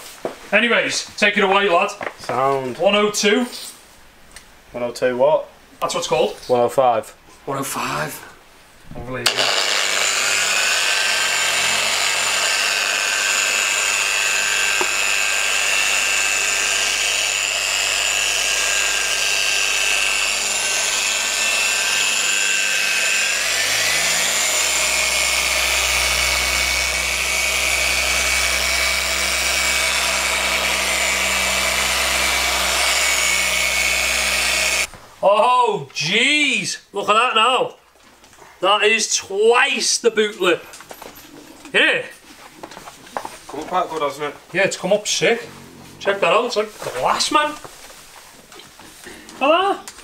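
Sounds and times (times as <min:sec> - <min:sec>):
electric polisher whine: 0:09.2 - 0:34.9.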